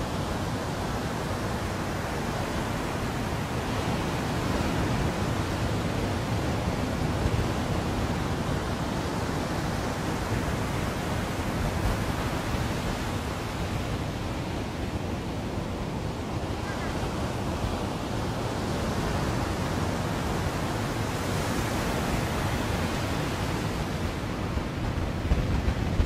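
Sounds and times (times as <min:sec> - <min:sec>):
sea surf washing onto beach: 0:00.0 - 0:26.0
wind rumbling on microphone: 0:00.0 - 0:26.0.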